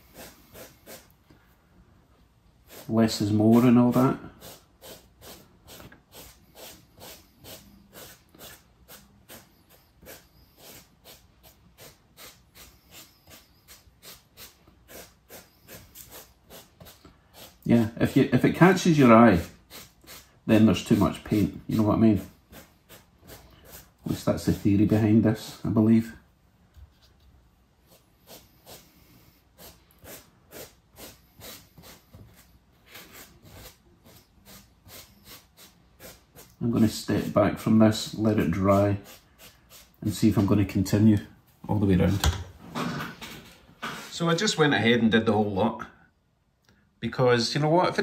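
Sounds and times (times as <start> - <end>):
paintbrush strokes on styrofoam: 0.0 - 1.1, 2.6 - 25.8, 27.0 - 41.1
paintbrush scratchy swishes: 27.8 - 40.8.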